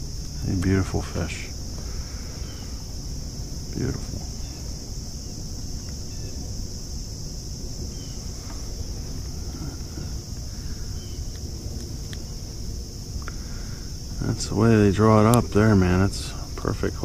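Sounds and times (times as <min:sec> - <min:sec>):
insects chorus: 0:00.0 - 0:17.0
faint clicks: 0:13.2 - 0:13.4.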